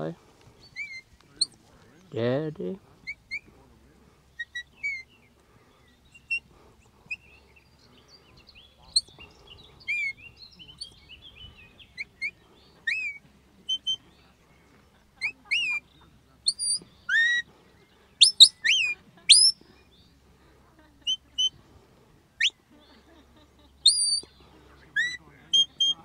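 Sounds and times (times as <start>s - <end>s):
shepherd's whistle sharp notes: 16.5s - 17.4s, 18.2s - 19.6s, 23.9s - 24.3s.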